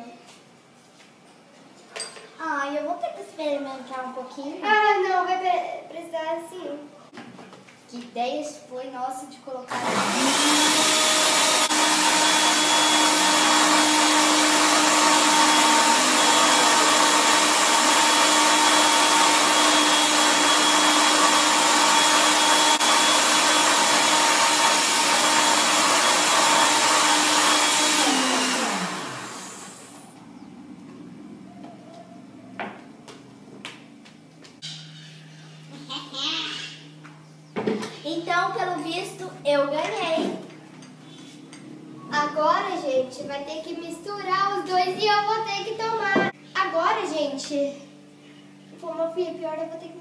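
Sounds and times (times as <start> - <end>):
electric blender running: 9.7 - 30.2.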